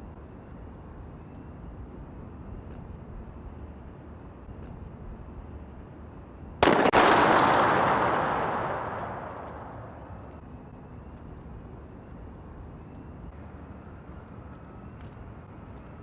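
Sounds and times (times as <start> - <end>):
handgun shot: 6.6 - 10.3
noisy rush after gunshot: 6.6 - 10.4.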